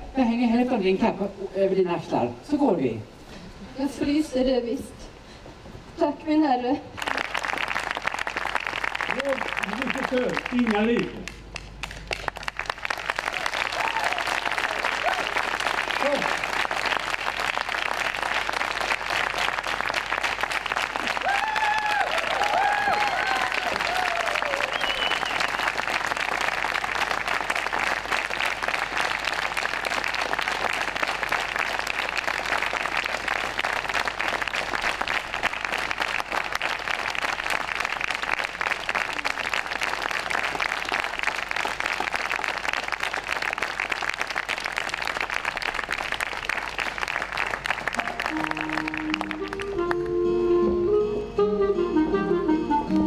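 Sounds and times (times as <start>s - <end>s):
audience applauding: 7.0s - 50.2s
music: 48.0s - 53.0s.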